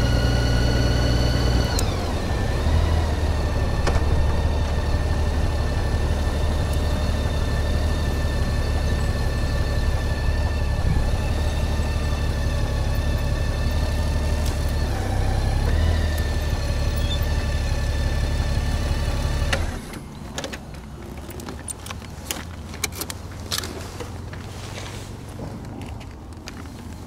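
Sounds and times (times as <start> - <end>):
motorcycle engine running: 0.0 - 19.6.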